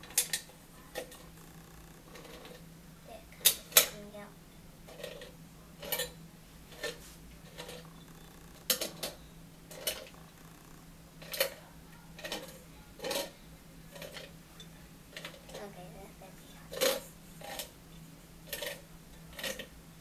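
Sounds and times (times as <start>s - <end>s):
can opener clicking and crunching: 8.5s - 10.2s, 18.5s - 19.7s.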